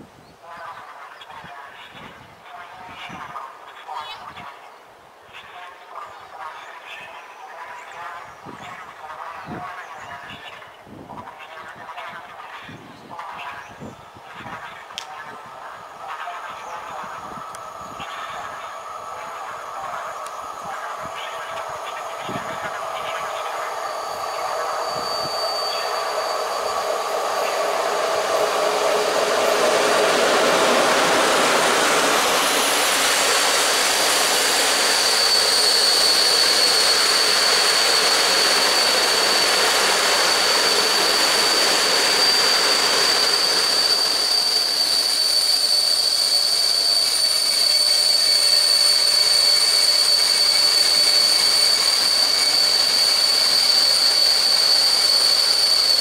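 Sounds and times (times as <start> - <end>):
train wheels rumbling on rails: 13.1 - 56.0
high-pitched wheel squeal: 16.1 - 56.0.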